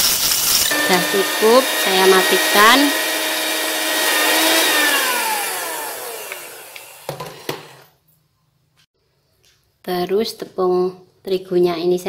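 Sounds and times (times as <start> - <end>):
hand mixer motor winding down: 0.6 - 7.9.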